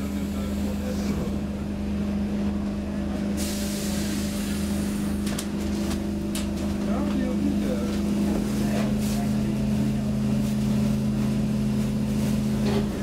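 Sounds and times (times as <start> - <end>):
train equipment hum: 0.0 - 13.0
air hissing: 3.4 - 5.2.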